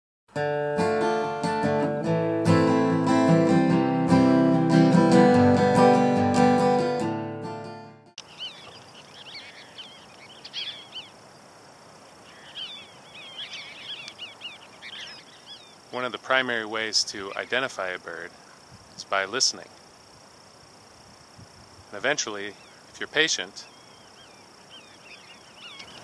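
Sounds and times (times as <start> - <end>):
faint outdoor background: 0.3 - 26.0
plucked string music: 0.4 - 8.1
high bird calls: 8.2 - 11.4, 12.0 - 18.6, 22.0 - 26.0.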